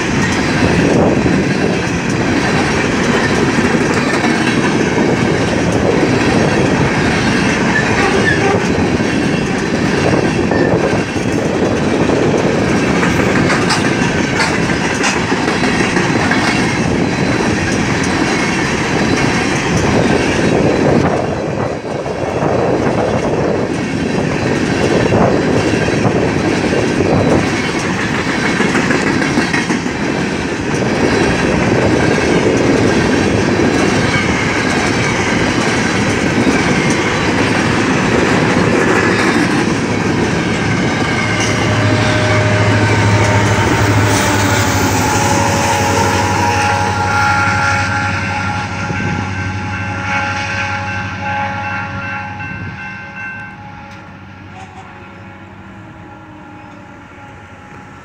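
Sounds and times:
train wheels clattering over rails: 0:00.0 - 0:47.6
distant train horn: 0:07.7 - 0:08.9, 0:40.5 - 0:58.0.

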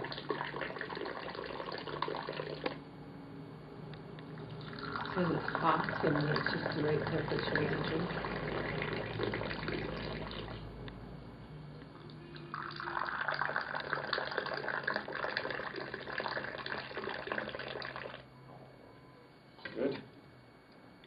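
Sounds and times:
tea pouring into glass: 0:00.0 - 0:02.8, 0:04.3 - 0:10.6, 0:12.3 - 0:18.2.

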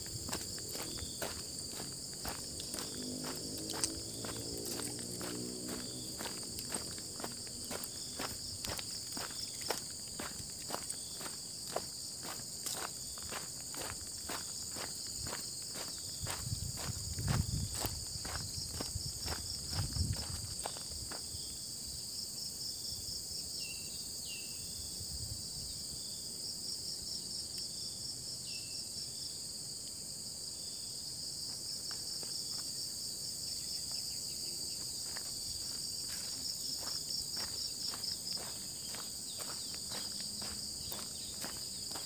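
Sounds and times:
footsteps on grass and dirt: 0:00.0 - 0:21.5, 0:34.7 - 0:42.0
insects buzzing: 0:00.0 - 0:42.0.

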